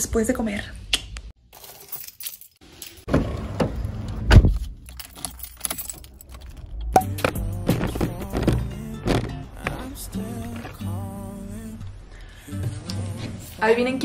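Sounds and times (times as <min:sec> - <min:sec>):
car keys jangling: 0:01.6 - 0:03.1, 0:04.5 - 0:09.3
heavy thump: 0:07.2 - 0:09.8.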